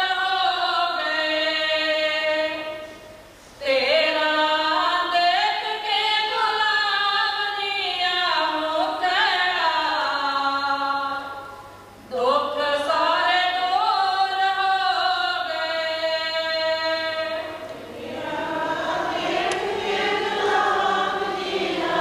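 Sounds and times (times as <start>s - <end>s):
devotional singing: 12.1s - 22.0s.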